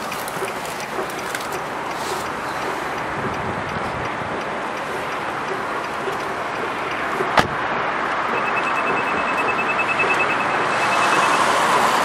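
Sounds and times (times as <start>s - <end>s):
car door shutting: 7.2s - 7.7s
short high beeps: 8.3s - 11.6s.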